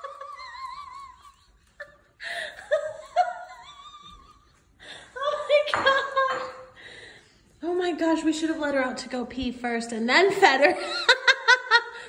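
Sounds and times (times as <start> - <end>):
high-pitched laughter: 0.0 - 4.6.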